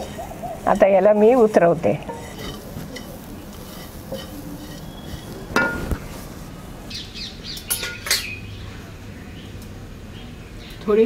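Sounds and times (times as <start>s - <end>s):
faint background noise: 0.0s - 11.0s
metal cooking pan clinking: 2.0s - 6.0s, 7.6s - 8.4s.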